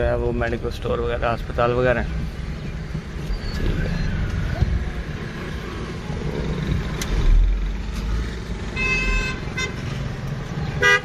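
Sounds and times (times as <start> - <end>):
car rumbling over rough road: 0.0 - 10.9
vehicle horn toots: 8.8 - 9.8, 10.8 - 11.0.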